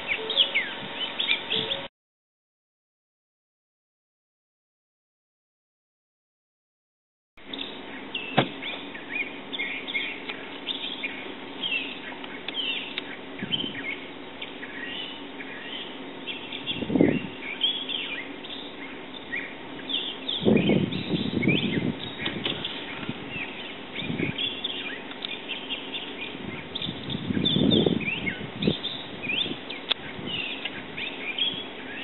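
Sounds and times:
small birds chirping: 0.0 - 1.9, 7.4 - 32.0.

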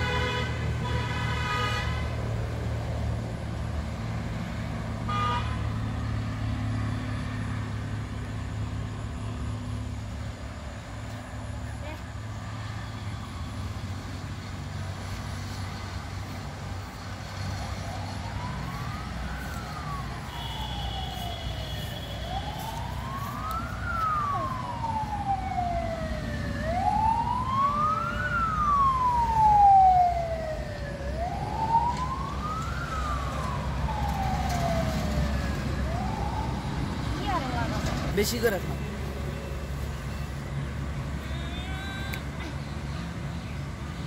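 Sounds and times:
road traffic rumble: 0.0 - 44.0
emergency siren wailing: 11.8 - 42.5.

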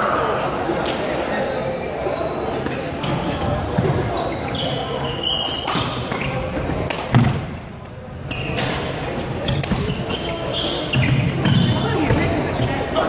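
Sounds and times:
shoes squeaking: 2.1 - 6.7, 8.0 - 12.9
rackets hitting shuttlecock: 8.5 - 12.3.

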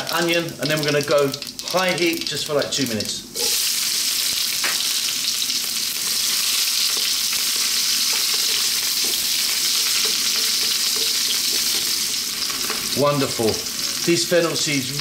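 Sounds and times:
onion sizzling in hot oil: 0.0 - 15.0
wooden spatula scraping: 6.8 - 12.9.

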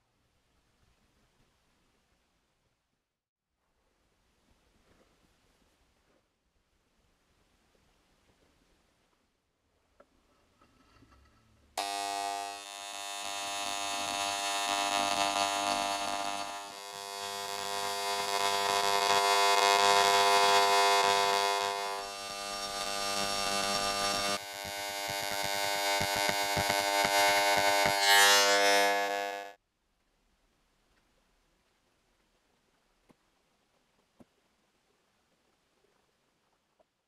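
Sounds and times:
electric engraving pen buzzing: 11.8 - 29.6.

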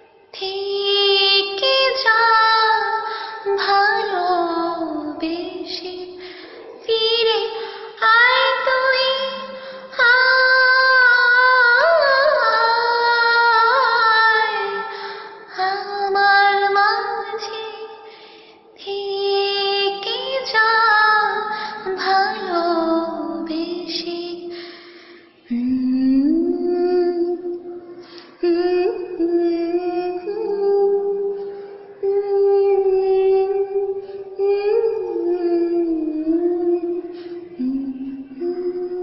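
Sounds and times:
woman singing: 0.0 - 18.1, 18.8 - 24.7, 25.4 - 39.0.

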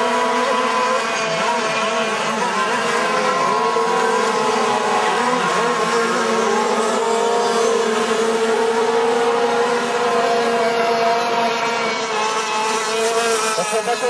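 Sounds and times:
rc boat engines buzzing: 0.0 - 14.0.

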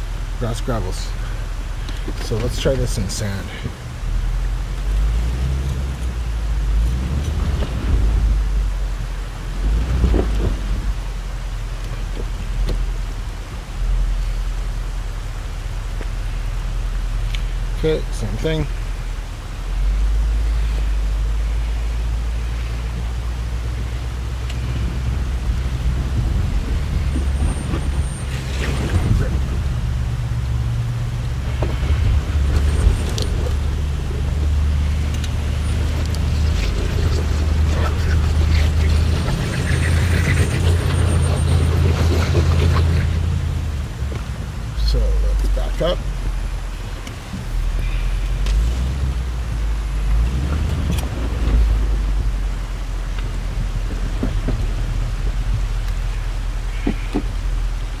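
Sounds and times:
engine and drivetrain rumble: 0.0 - 58.0
stones crackling under tyres: 24.4 - 30.6, 31.2 - 52.3, 53.0 - 57.4
hiss: 47.4 - 49.2.

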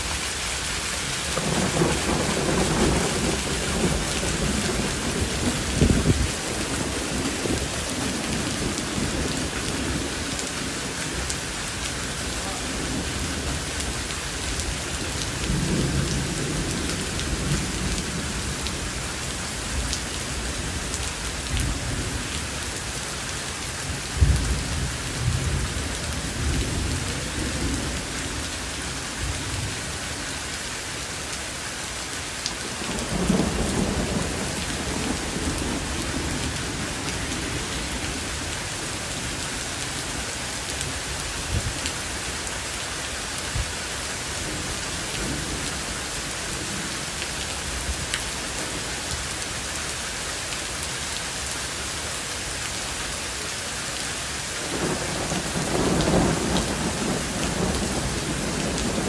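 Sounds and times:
heavy rain falling: 0.0 - 59.0
thunder rumbling: 1.3 - 10.1, 54.6 - 59.0.

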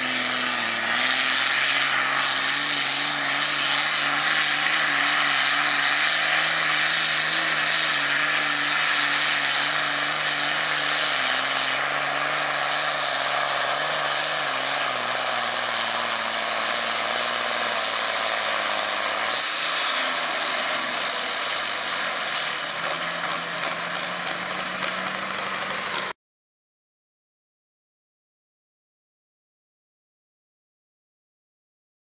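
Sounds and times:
tractor engine lugging: 0.0 - 26.2.

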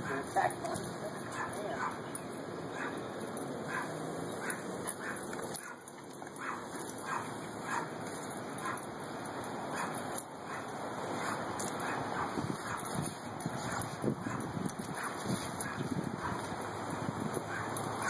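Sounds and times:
hose spraying water: 6.4 - 18.0.

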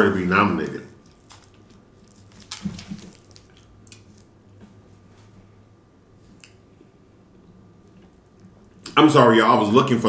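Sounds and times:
low steady hum: 0.0 - 10.0
man chewing food: 0.4 - 4.7, 7.7 - 8.9.

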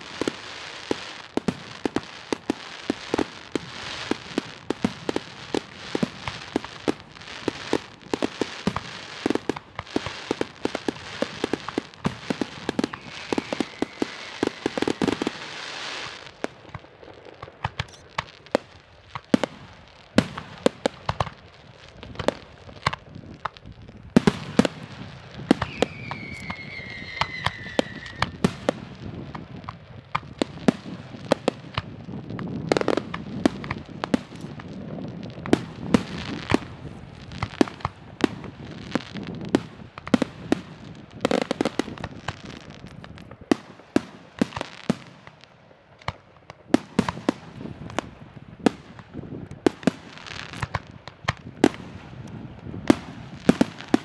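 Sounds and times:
fireworks bangs and pops: 0.0 - 54.0
firework whistle falling: 12.6 - 16.1, 25.5 - 28.5.

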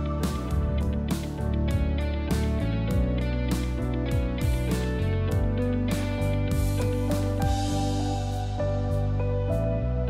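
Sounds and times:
instrumental music with plucked notes: 0.0 - 10.0.

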